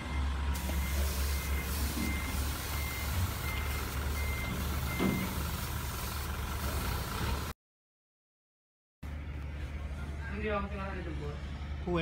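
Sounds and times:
reversing alarm beeps: 0.0 - 5.4
spray gun air hiss: 0.6 - 7.3.

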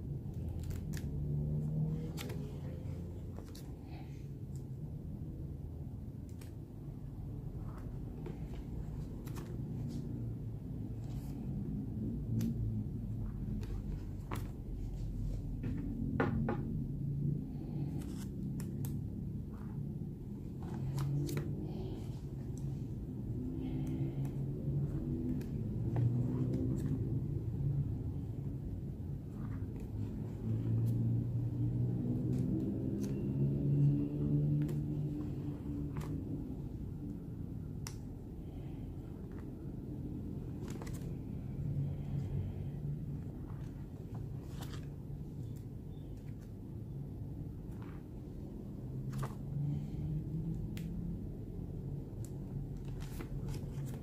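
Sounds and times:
low steady hum: 0.0 - 54.0
plastic pages turning: 0.3 - 4.7, 13.2 - 15.8, 17.7 - 22.6, 23.7 - 27.2, 32.0 - 36.6, 40.5 - 42.5, 43.2 - 46.5, 47.6 - 49.8, 52.2 - 54.0
plastic pages crackling: 0.4 - 1.2, 17.8 - 22.6, 34.6 - 36.4, 40.5 - 41.3, 52.2 - 54.0.

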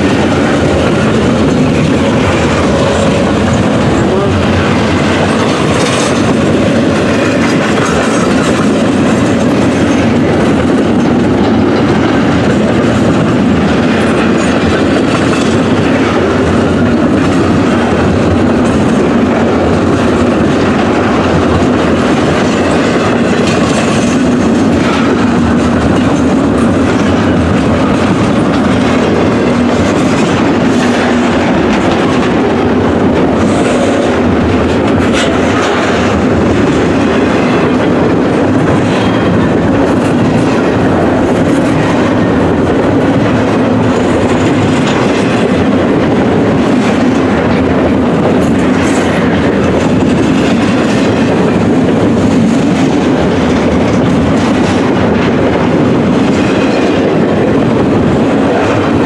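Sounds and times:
freight train wheels rumbling on rails: 0.0 - 59.0.

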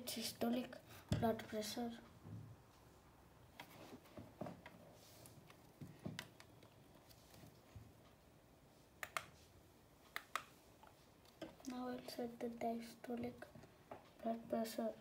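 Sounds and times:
soft taps and knocks: 1.1 - 1.5, 5.4 - 6.6
computer mouse clicking: 9.0 - 9.4, 10.0 - 10.6.

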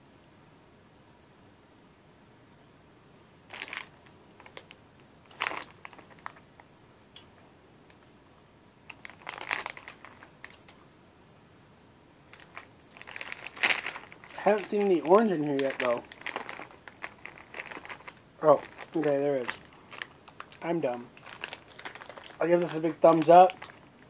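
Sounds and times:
plastic bag crinkling: 3.5 - 6.6, 8.9 - 10.7, 12.3 - 24.0.

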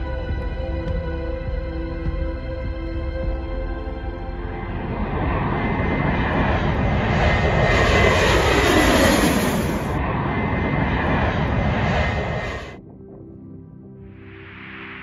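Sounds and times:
jet airliner passing overhead: 3.5 - 12.9.

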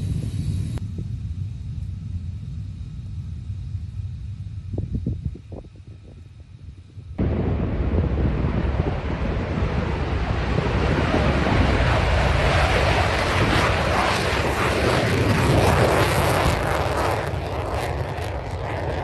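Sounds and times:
jet roaring on takeoff: 0.0 - 19.0.

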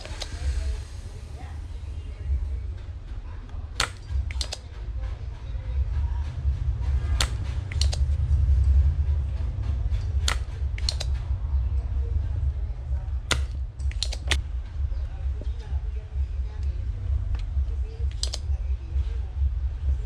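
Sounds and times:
sharp clicks: 0.0 - 0.4, 3.8 - 4.8, 7.1 - 8.2, 9.9 - 11.3, 13.2 - 14.4, 17.3 - 18.5
steady low hum: 0.0 - 20.0.

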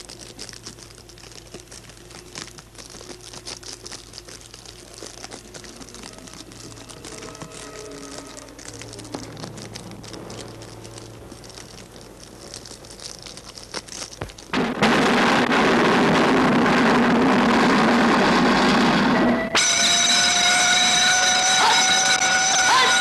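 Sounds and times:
soft crackling and clicks: 0.0 - 15.5
siren with rising tone: 18.3 - 23.0.

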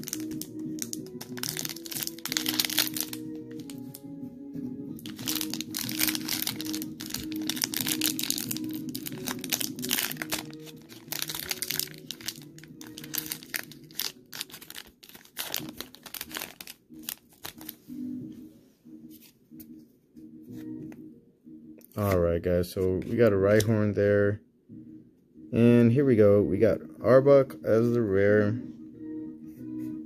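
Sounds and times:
foil wrapper crinkling: 0.0 - 3.8, 5.0 - 17.8
background music: 0.0 - 30.0.

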